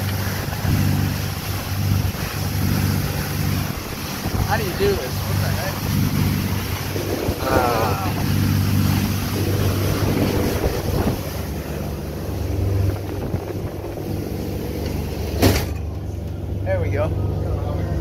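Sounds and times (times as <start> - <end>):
boat engines droning: 0.0 - 18.0
water rushing along hull: 0.0 - 18.0
wind rushing: 3.6 - 15.2.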